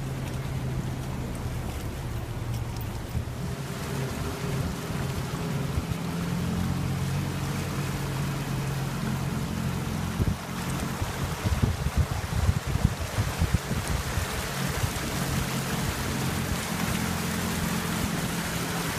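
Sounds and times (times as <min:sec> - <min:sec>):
truck engine running: 0:00.0 - 0:12.6
water splashing against vehicle: 0:00.0 - 0:18.9.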